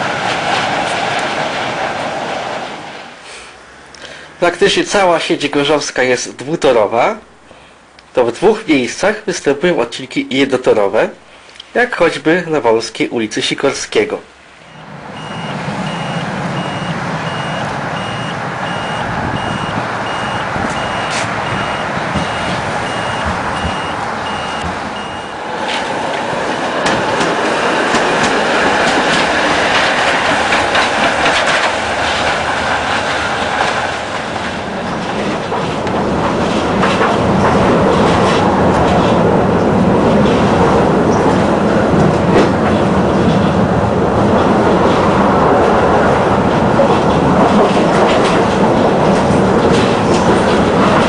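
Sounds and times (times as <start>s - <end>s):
tram rolling on track: 0.0s - 51.0s
high beeping: 14.7s - 25.4s
wheel clicks over rails: 20.7s - 39.4s, 46.5s - 51.0s.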